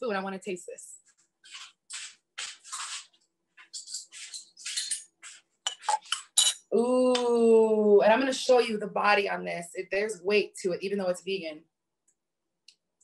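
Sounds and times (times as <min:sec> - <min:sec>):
kitchenware clinks and scrapes: 0:02.6 - 0:06.7.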